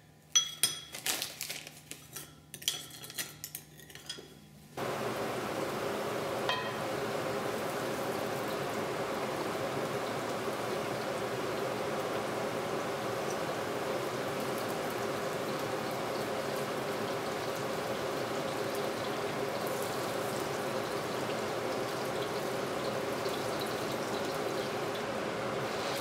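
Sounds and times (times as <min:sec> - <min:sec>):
metal spoon clinking ceramic bowl: 0:00.3 - 0:01.0, 0:02.2 - 0:04.4, 0:06.5 - 0:06.8
food sizzling in hot oil: 0:04.8 - 0:26.0.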